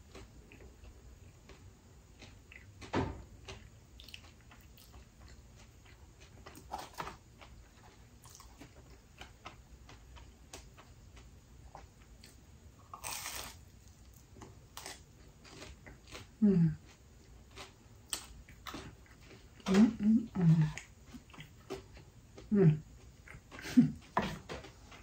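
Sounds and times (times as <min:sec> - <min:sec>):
chewing crisp crust: 0:00.0 - 0:25.0.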